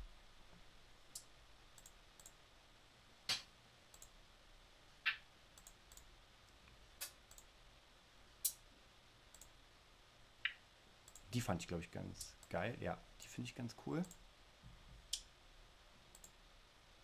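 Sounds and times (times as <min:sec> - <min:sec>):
computer key clicks: 0:01.2 - 0:02.4.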